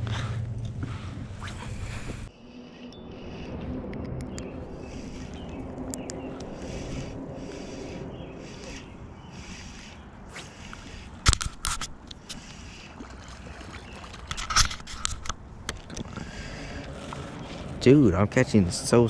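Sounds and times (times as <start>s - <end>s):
fishing reel whirring: 1.4s - 15.2s.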